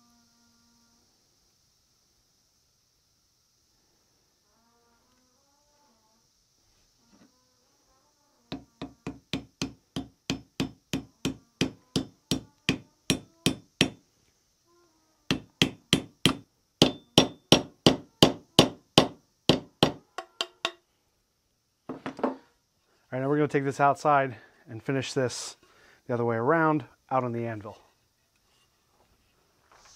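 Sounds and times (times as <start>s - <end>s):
hammer blows ringing: 15.3s - 20.8s.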